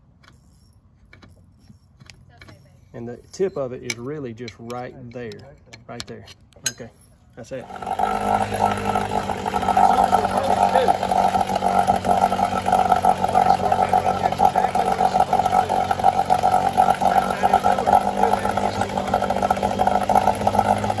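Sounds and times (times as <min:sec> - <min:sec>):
outboard motor running: 0:07.5 - 0:21.0.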